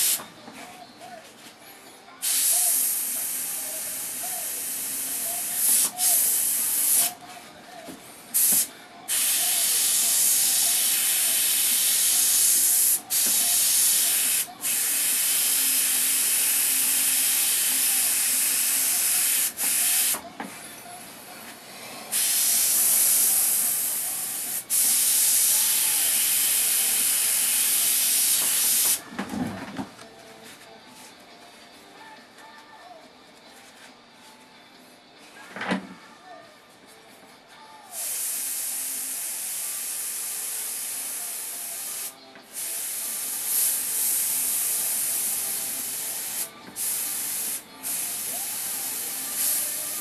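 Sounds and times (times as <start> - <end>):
airbrush hissing: 0.0 - 0.2, 2.2 - 7.2, 8.3 - 20.2, 22.1 - 29.0, 38.0 - 50.0.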